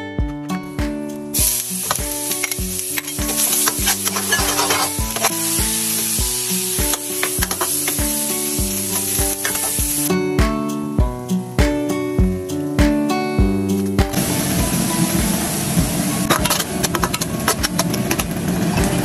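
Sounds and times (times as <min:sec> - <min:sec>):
acoustic guitar music: 0:00.0 - 0:19.0
garlic sizzling in hot oil: 0:01.3 - 0:10.1, 0:14.2 - 0:19.0
metal spatula scraping wok: 0:01.4 - 0:08.1.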